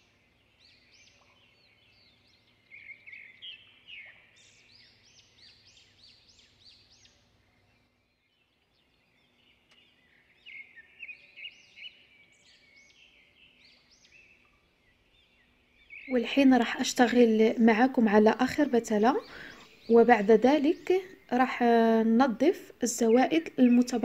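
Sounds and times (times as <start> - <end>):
faint steady hum: 0.0 - 24.0
small birds chirping: 0.0 - 24.0.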